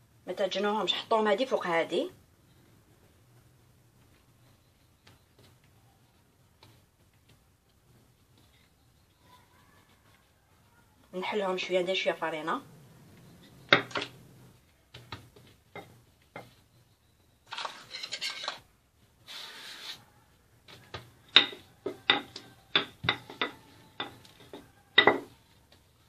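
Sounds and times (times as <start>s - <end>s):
rolling pin knocking on surface: 20.9s - 25.3s.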